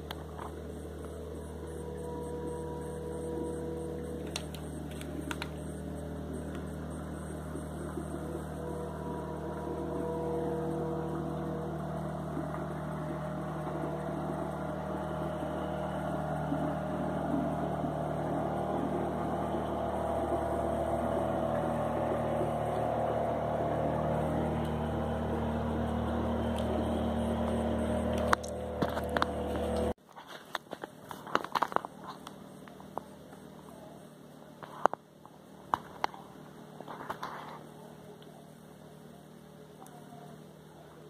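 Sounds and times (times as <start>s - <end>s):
boat engine droning: 0.0s - 30.0s, 30.8s - 41.0s
faint clicks and crackles: 3.8s - 8.8s, 27.4s - 33.7s.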